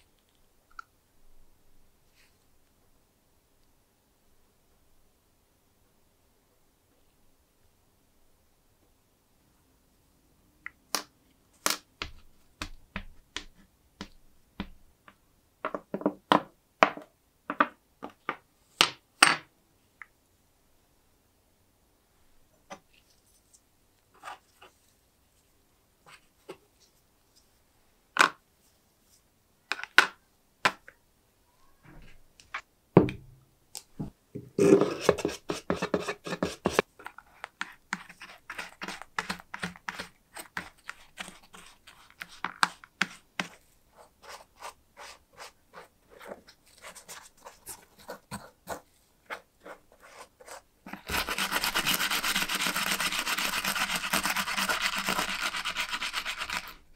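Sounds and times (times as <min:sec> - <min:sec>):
paint brush scrubbing metal: 0:50.0 - 0:56.8.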